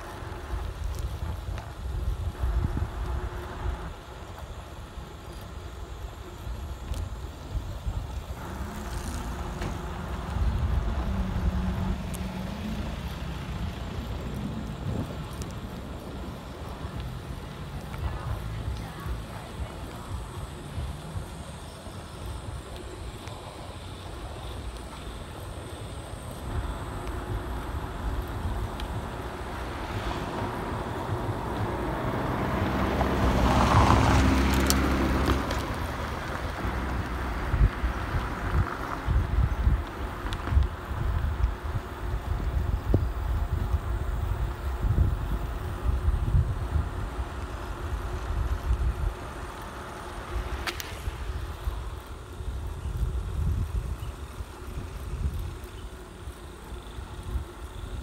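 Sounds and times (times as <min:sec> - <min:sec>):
vehicle engine and road noise: 0:00.0 - 0:58.0
wind noise on microphone: 0:00.0 - 0:58.0
car passing close by: 0:26.6 - 0:39.3.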